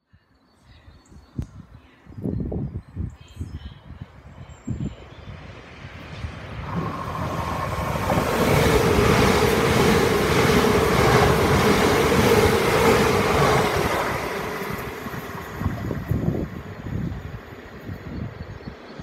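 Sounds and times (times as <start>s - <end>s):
electric train passing: 5.0s - 19.0s
train wheels rushing with whine: 5.4s - 18.5s.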